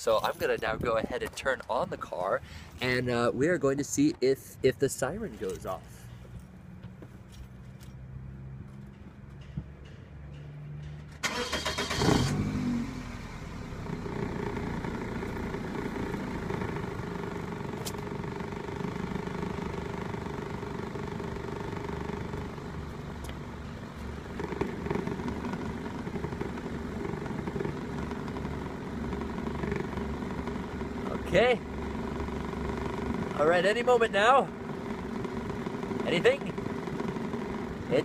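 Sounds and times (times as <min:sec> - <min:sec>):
car starter cranking: 0:11.2 - 0:17.0
car engine revving and idling: 0:11.2 - 0:38.0.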